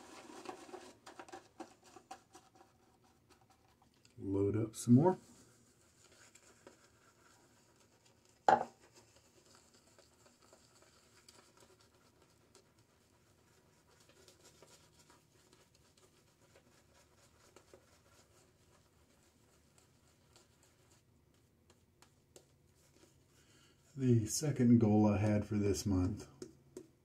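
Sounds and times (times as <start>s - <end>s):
shaving brush scratching on beard: 0.0s - 3.8s, 4.8s - 21.1s.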